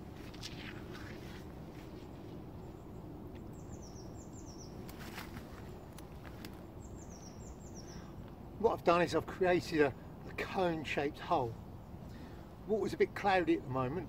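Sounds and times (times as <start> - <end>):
small bird singing: 2.6 - 8.2.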